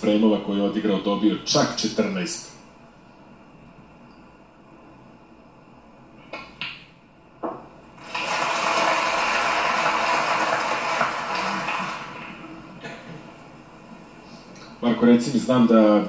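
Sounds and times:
audience applauding: 8.0s - 12.8s.

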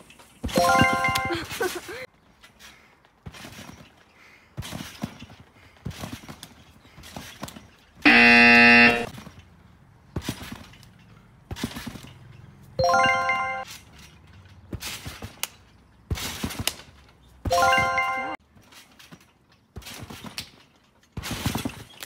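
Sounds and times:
trampoline bouncing thuds: 0.0s - 22.0s
harsh buzzer: 8.0s - 9.1s.

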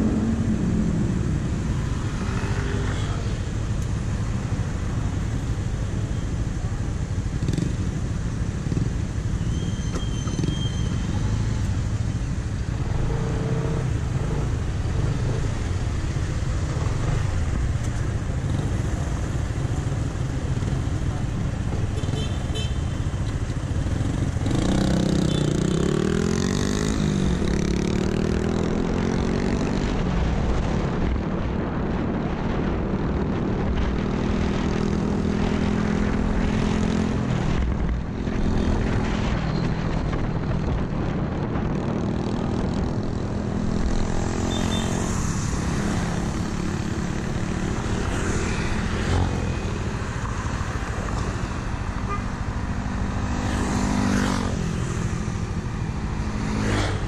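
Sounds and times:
wind noise on microphone: 27.0s - 44.4s.

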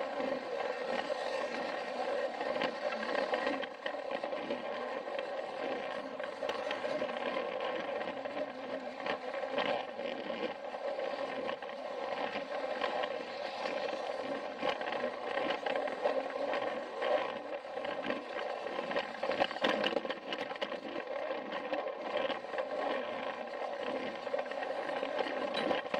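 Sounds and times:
wheels clicking on plastic track: 0.0s - 25.9s.

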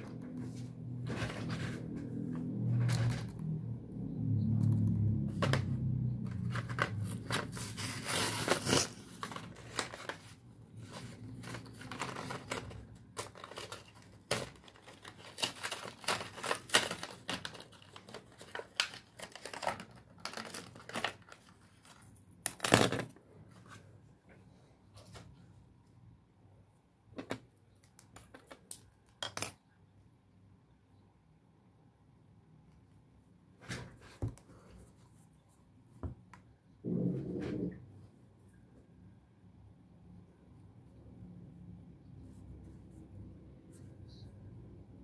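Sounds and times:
packaging crinkling and tearing: 5.3s - 23.2s.

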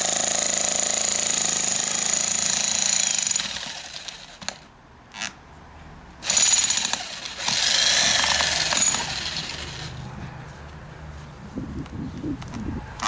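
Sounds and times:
demolition hammer chiselling wood: 0.0s - 4.6s, 6.2s - 9.7s.

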